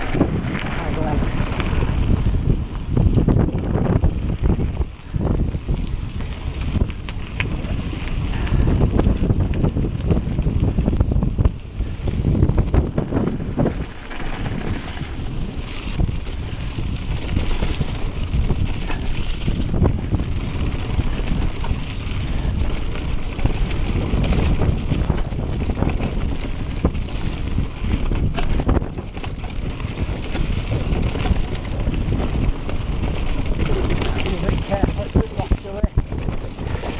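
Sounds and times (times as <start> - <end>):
mountain bike rumbling and rattling: 0.0 - 36.9
wind buffeting microphone: 0.0 - 36.9.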